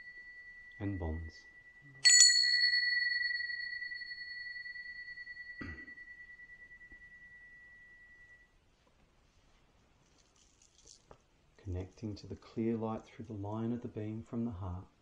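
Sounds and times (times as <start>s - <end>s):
small bell ringing: 0.0s - 8.5s.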